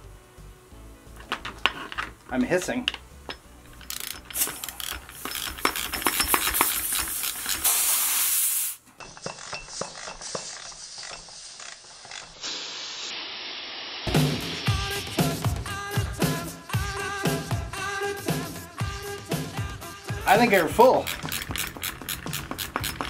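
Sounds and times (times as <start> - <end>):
gas hissing from fitting: 1.3 - 8.8, 9.6 - 15.3, 20.9 - 23.0
rapid clicking: 3.8 - 7.7, 21.0 - 23.0.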